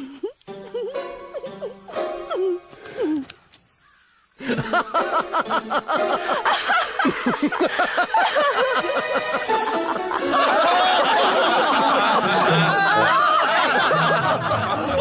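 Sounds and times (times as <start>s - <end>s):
many voices laughing: 4.4s - 15.0s.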